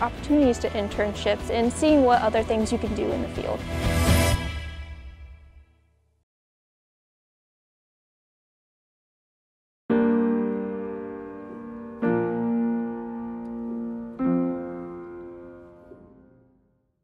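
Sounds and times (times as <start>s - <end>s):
piano chords ringing: 9.9s - 16.8s.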